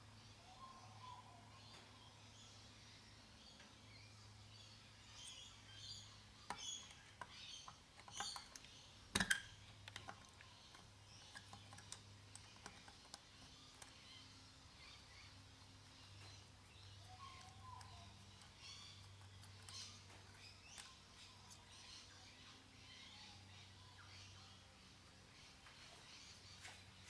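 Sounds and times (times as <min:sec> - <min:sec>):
faint bird chirps: 0:00.0 - 0:27.0
small metal parts clicking: 0:06.5 - 0:14.1.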